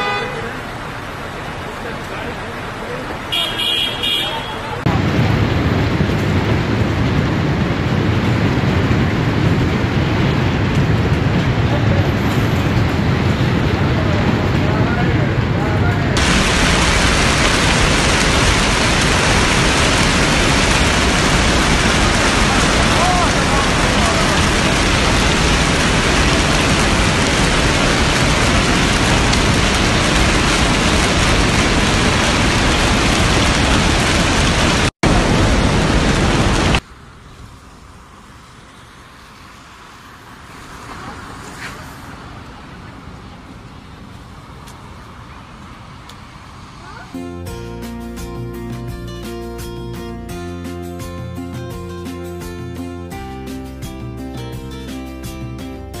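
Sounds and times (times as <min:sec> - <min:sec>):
hail pounding on roof and glass: 0:16.2 - 0:36.8.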